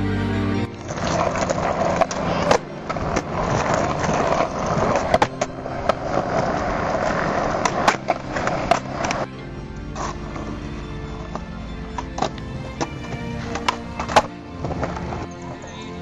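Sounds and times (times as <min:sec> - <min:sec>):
skateboard wheels rolling on concrete: 0:00.0 - 0:16.0
skateboard tail pops and slaps: 0:07.6 - 0:09.3, 0:12.0 - 0:15.2.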